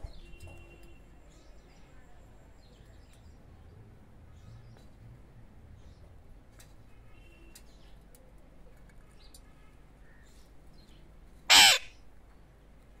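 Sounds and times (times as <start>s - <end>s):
faint clicks: 7.4s - 9.5s
parakeet loud call: 11.5s - 12.0s.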